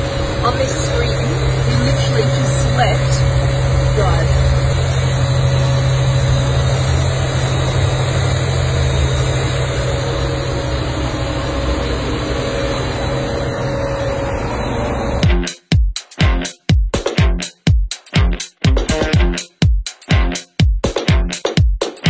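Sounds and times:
vehicle engine droning: 0.0 - 15.3
dance music: 0.4 - 4.6, 15.2 - 22.0.

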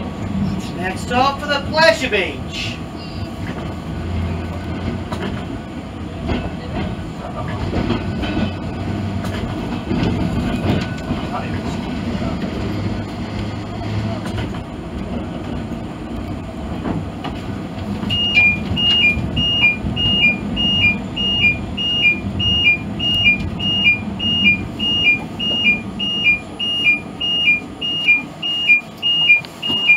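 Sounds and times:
tram rumbling: 0.0 - 29.9
two-note electronic beep: 18.1 - 29.9.

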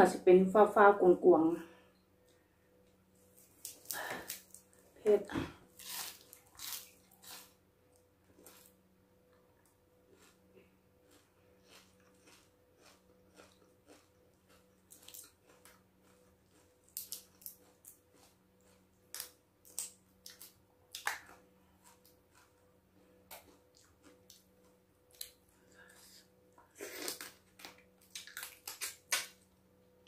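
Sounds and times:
chewing and lip smacks: 11.1 - 22.6, 23.2 - 26.0, 27.0 - 29.4
crab shell cracking: 27.1 - 29.4.

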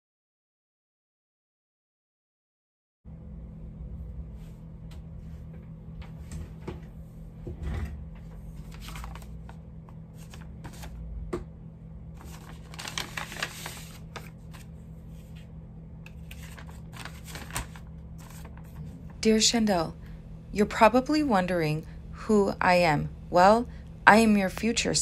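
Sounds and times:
low hum: 3.1 - 25.0
paper rustling: 8.2 - 11.0, 12.2 - 19.2
envelope being opened: 8.5 - 11.0, 12.2 - 15.4, 16.1 - 19.2.

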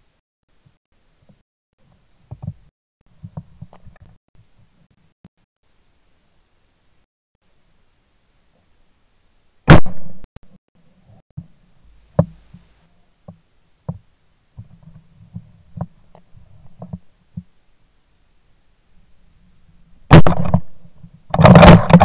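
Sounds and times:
shotgun shot: 9.7 - 10.3, 20.1 - 20.8.

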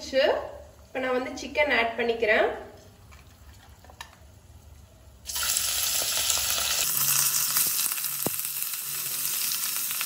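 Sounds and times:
chicken sizzling in hot oil: 5.2 - 10.0.

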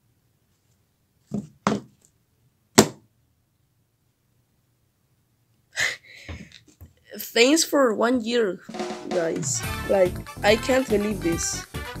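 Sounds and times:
phones knocking on table: 1.3 - 1.9.

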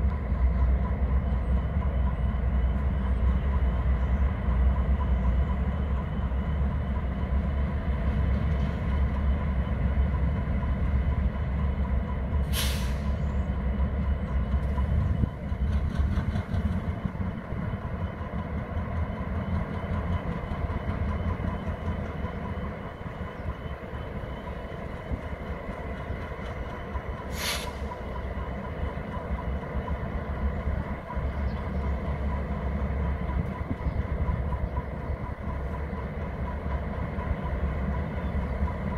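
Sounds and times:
diesel locomotive rumbling: 0.0 - 38.9
air brake hisses: 12.4 - 13.3, 27.3 - 28.0.

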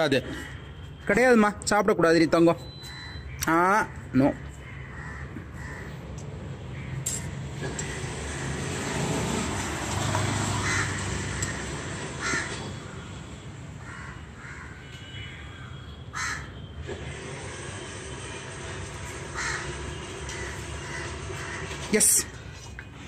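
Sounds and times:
outdoor background noise: 0.0 - 23.0
crows cawing: 2.9 - 8.8, 10.3 - 13.2, 13.8 - 16.6, 19.2 - 22.0.

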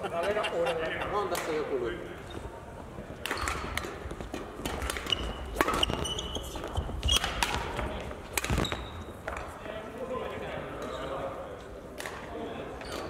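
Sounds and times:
shoes squeaking on floor: 2.1 - 2.6, 3.3 - 9.5, 12.7 - 13.0
racket hitting shuttlecock: 3.2 - 6.3, 7.0 - 9.5.

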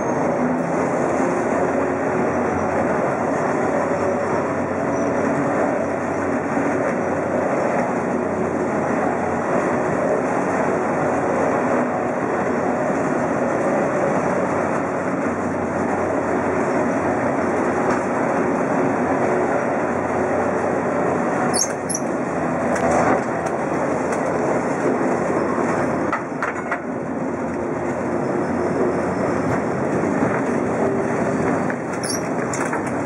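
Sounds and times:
high wheel squeal: 0.0 - 0.4, 3.6 - 6.3, 21.4 - 22.2, 31.2 - 32.6
tram body rattling: 0.0 - 33.0
tram wheels rumbling on rails: 0.0 - 33.0.

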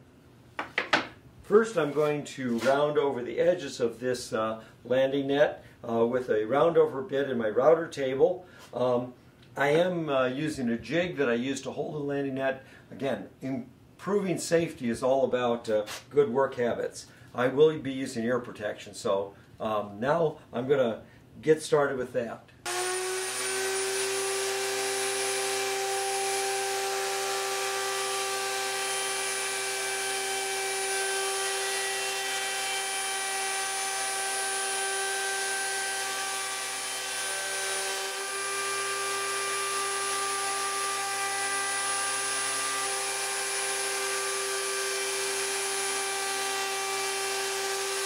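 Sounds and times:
router cutting wood: 22.7 - 48.0.

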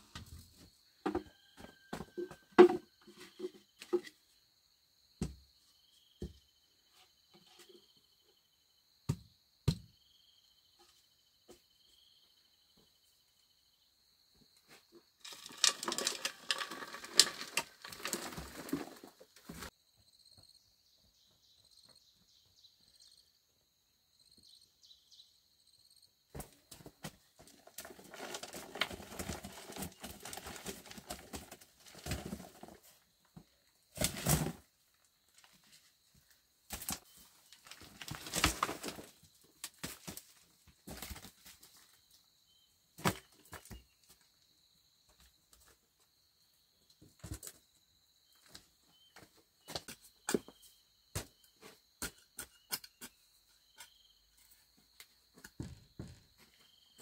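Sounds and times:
insects chirping: 0.1 - 57.0
rustling and handling noise: 15.2 - 19.7.

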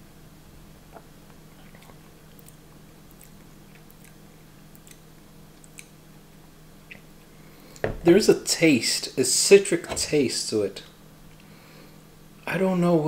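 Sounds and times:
steady low hum: 0.0 - 13.0
lip smacks and tongue clicks: 0.9 - 6.0, 6.8 - 7.2.

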